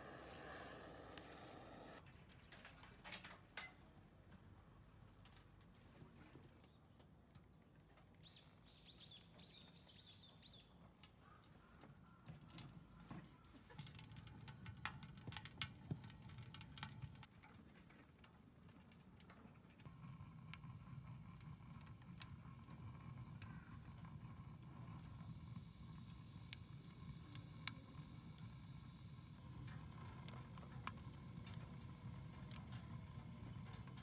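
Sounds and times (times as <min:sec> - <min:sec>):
wood fire crackling in stove: 0:00.0 - 0:02.0, 0:13.6 - 0:34.0.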